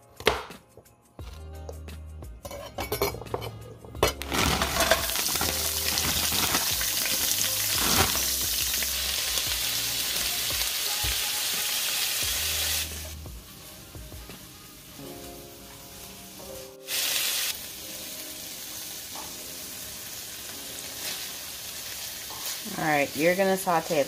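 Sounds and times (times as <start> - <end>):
knife chopping on cutting board: 0.2 - 0.5
vegetables sizzling in pan: 4.2 - 24.0.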